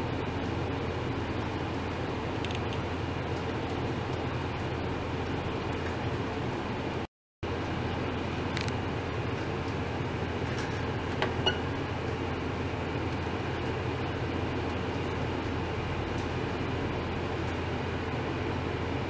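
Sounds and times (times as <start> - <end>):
steady low hum and hiss: 0.0 - 19.0.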